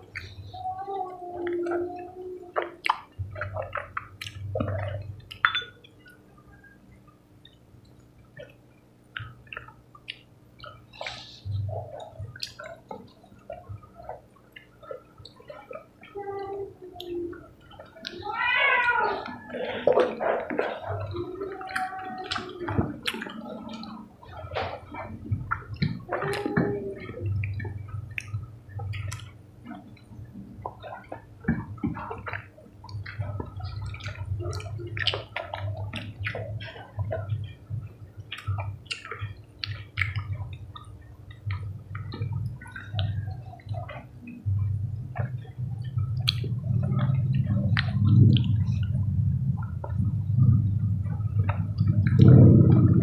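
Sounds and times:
low hum: 0.0 - 53.0
wet chewing and slurping: 8.3 - 16.2, 16.9 - 53.0
mouth clicks: 8.4 - 49.0.

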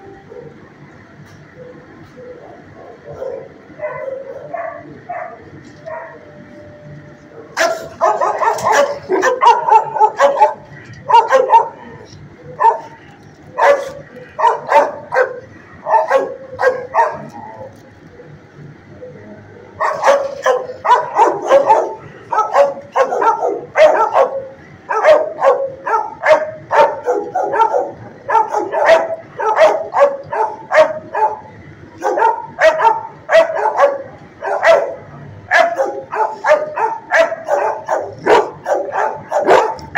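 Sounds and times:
dog barking: 2.8 - 6.3, 7.6 - 12.0, 12.6 - 13.0, 13.6 - 17.6, 19.8 - 39.9.

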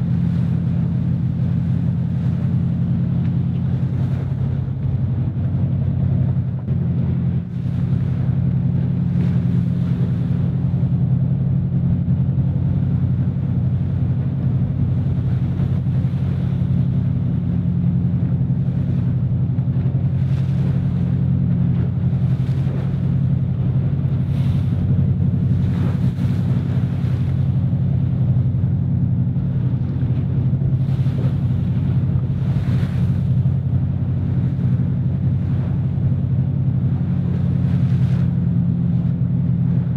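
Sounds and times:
boat engine drone: 0.0 - 39.9
waves splashing: 0.0 - 39.9
wind buffeting microphone: 0.0 - 39.9.

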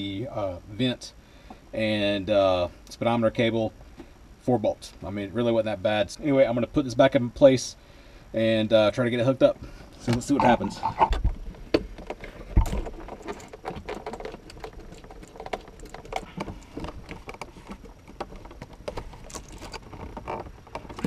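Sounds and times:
clicks knocks and rubbing: 10.0 - 21.0.

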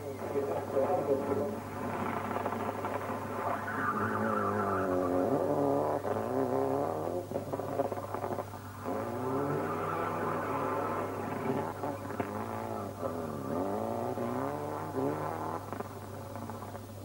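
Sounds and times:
rally car engine revving: 0.0 - 17.0
tyre squeal: 3.3 - 6.4, 8.7 - 15.2.

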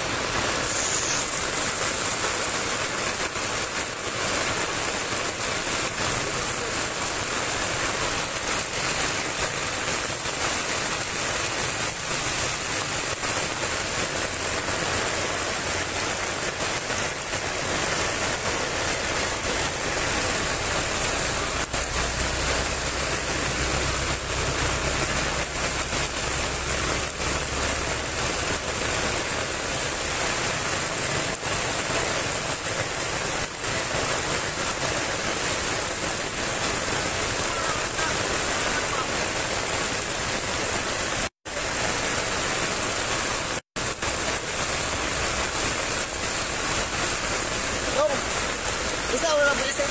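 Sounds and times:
heavy rain pouring on road: 0.0 - 49.9
vehicle engine rumble: 13.2 - 32.2.

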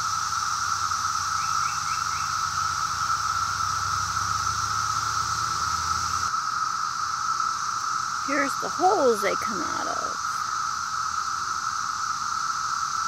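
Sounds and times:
cicadas droning: 0.0 - 13.0.

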